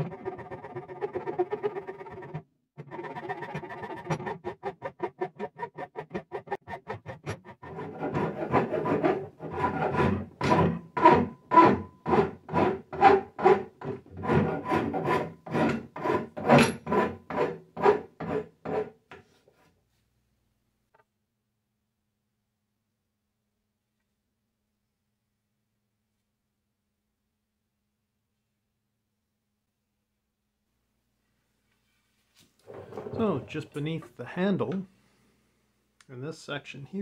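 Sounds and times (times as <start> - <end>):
wood rasp filing wood: 0.0 - 19.0.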